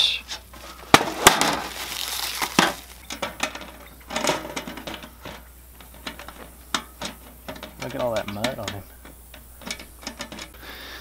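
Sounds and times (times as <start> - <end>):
plastic wrapping crinkling: 0.7 - 3.2.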